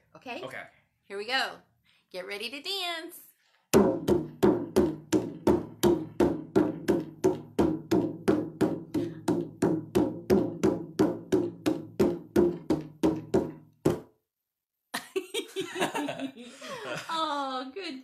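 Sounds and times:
hand drum beating: 3.8 - 14.1.

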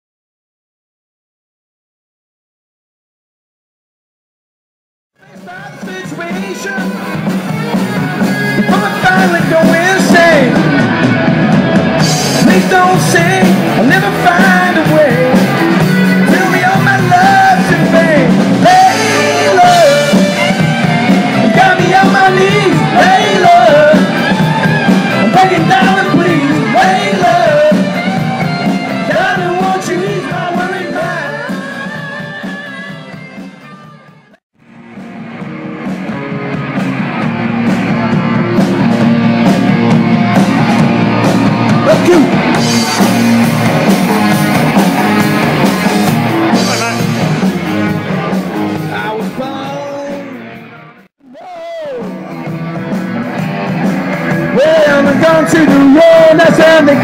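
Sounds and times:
lead singer singing: 5.2 - 11.0, 12.0 - 33.2, 48.8 - 50.6, 54.2 - 57.0
rock band playing live: 5.2 - 57.0.

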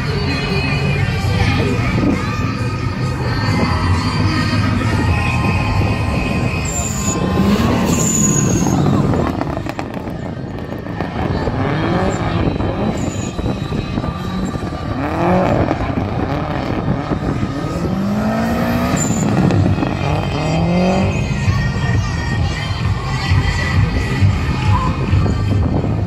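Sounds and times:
car engine revving hard: 3.6 - 21.4
tyres squealing on tarmac: 3.9 - 9.8, 11.9 - 14.6, 18.8 - 21.4.

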